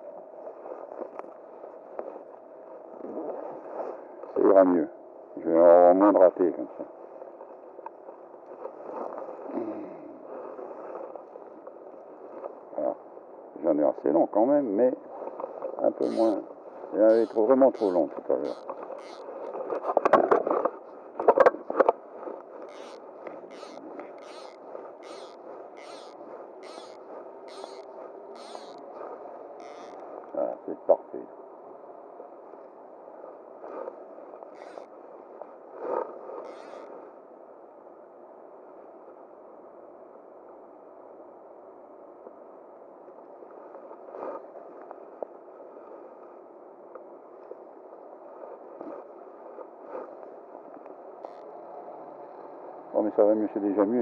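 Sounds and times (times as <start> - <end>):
scraping and rustling handling noises: 6.8 - 12.7, 15.1 - 30.4.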